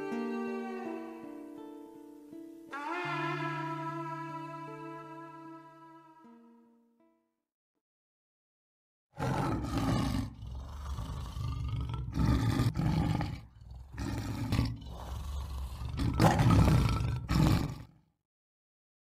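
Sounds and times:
lion roaring: 0:09.2 - 0:17.9.

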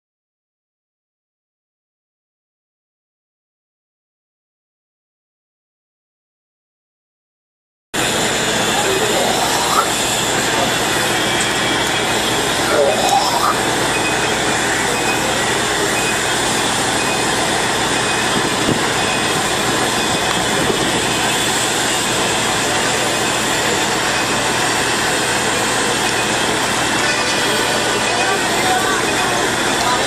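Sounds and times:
crane diesel engine running: 0:08.0 - 0:30.0.

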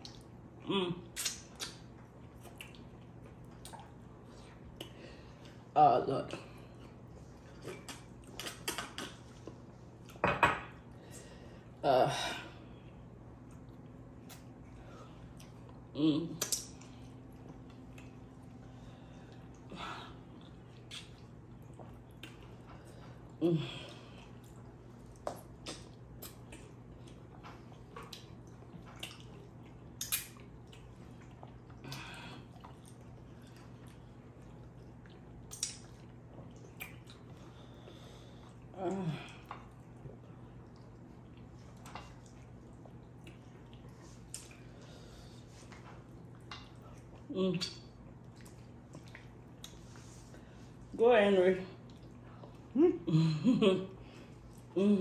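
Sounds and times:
wet chewing and lip smacks: 0:00.0 - 0:05.7, 0:06.7 - 0:10.2, 0:13.3 - 0:18.7, 0:19.3 - 0:23.4, 0:24.2 - 0:38.7, 0:39.4 - 0:50.9, 0:51.8 - 0:52.8
steady low hum: 0:00.0 - 0:55.0.

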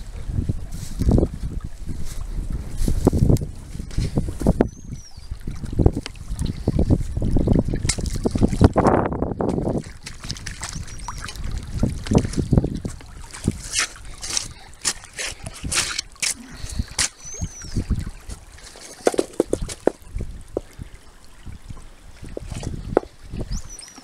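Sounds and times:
creek water trickling and splashing: 0:00.0 - 0:24.0
crackles and knocks: 0:19.0 - 0:20.7.

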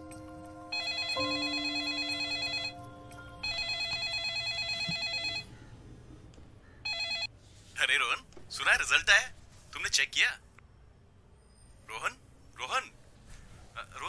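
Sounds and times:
telephone bell ringtone: 0:00.0 - 0:05.5, 0:06.9 - 0:07.3.

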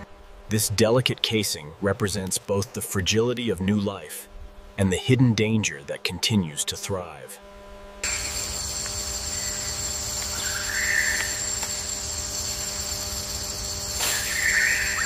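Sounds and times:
steady hum and low rumble: 0:00.0 - 0:15.0
high hiss: 0:08.0 - 0:15.0.

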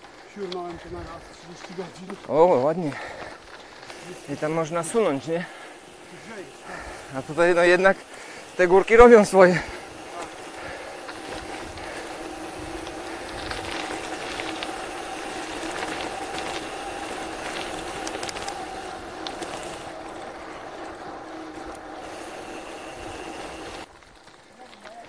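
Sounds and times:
bicycle tyres and drivetrain hum: 0:00.0 - 0:25.0
rushing noise: 0:03.9 - 0:23.9.

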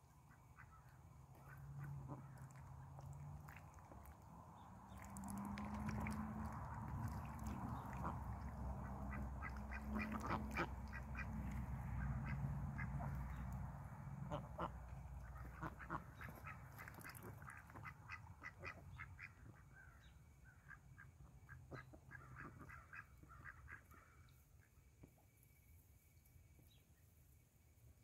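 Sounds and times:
ducks quacking softly: 0:00.1 - 0:04.2, 0:04.9 - 0:24.3
duck bills splashing in water: 0:00.6 - 0:13.5, 0:14.2 - 0:19.5.

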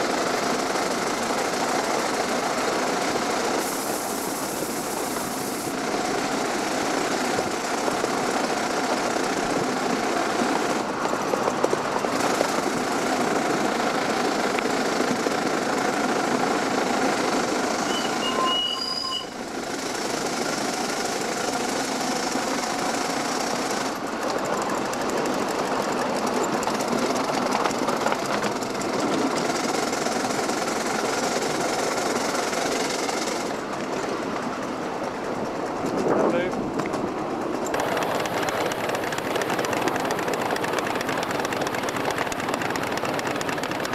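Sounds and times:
steam locomotive running on track: 0:00.0 - 0:43.9
short high tone: 0:17.9 - 0:19.4.

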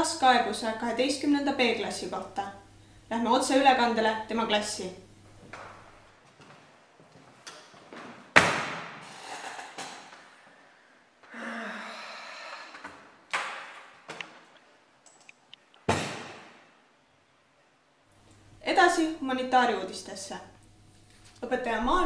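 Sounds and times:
person sighing: 0:11.2 - 0:12.8.

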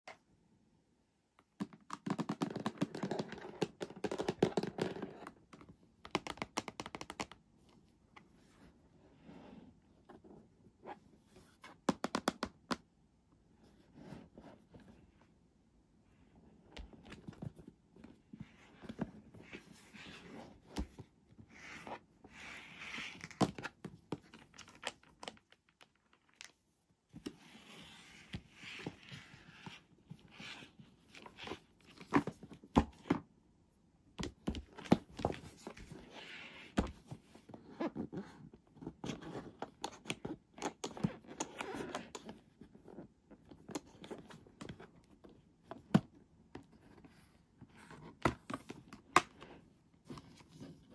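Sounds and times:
hands handling plastic case: 0:34.2 - 0:42.7.

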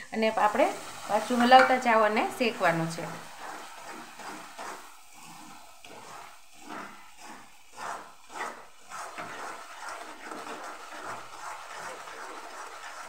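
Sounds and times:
flour sizzling in ghee: 0:00.0 - 0:13.0
spatula scraping a pan: 0:00.4 - 0:13.0.

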